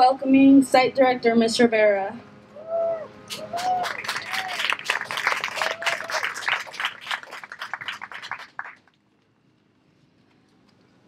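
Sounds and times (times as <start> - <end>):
audience applauding: 3.3 - 9.0.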